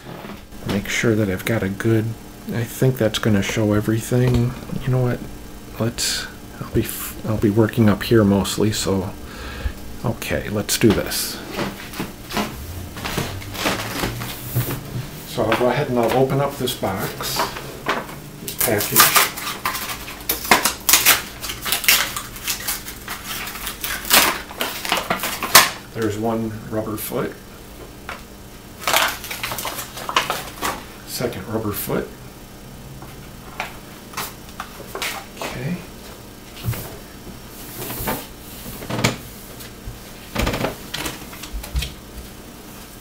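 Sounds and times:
packaging tearing and crumpling: 0:18.5 - 0:25.8, 0:28.8 - 0:30.8.

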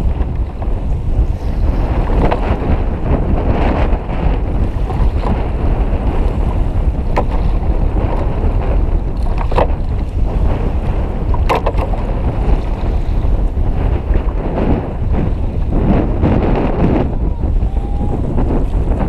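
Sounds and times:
wind buffeting microphone: 0:00.0 - 0:19.0
sharp knocks or splashes: 0:11.3 - 0:12.1.

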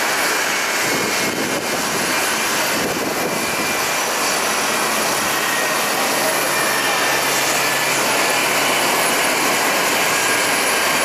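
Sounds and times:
jet engines rushing: 0:00.0 - 0:11.0.

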